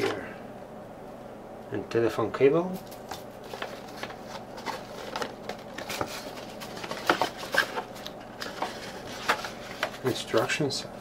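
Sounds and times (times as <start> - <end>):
cardboard packaging rustling: 2.8 - 10.5.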